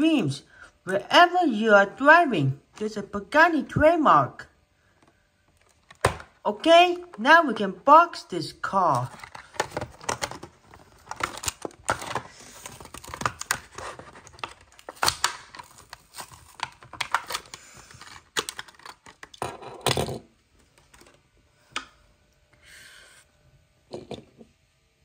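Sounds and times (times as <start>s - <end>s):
cardboard and plastic packaging tearing: 9.1s - 19.4s.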